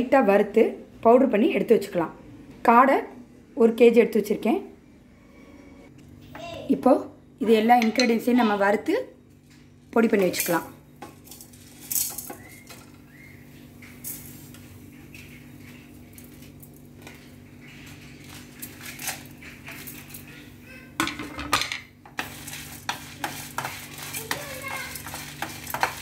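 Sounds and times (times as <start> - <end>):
spices clinking on metal pan: 22.1 - 26.0.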